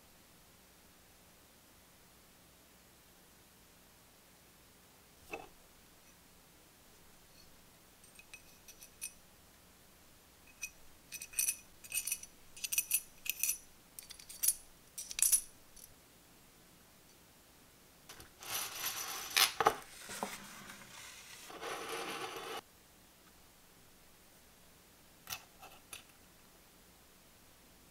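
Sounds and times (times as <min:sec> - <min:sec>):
metal tappets clinking: 0:07.4 - 0:09.2, 0:10.5 - 0:15.9
metal rubbing and scraping: 0:18.4 - 0:22.6.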